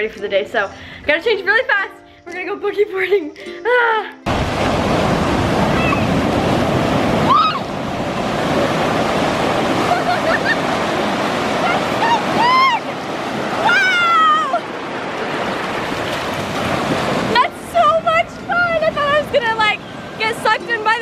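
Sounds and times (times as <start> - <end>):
ocean surf breaking: 4.2 - 21.0
kids shrieking and laughing: 5.7 - 6.1, 7.3 - 7.7, 11.6 - 13.0, 13.6 - 14.7.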